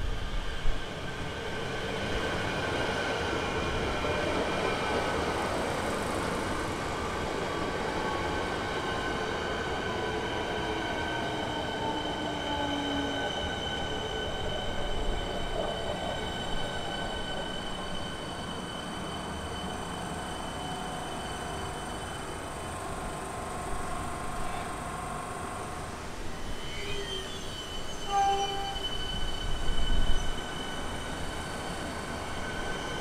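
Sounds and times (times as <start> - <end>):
train braking whine: 8.0 - 33.0.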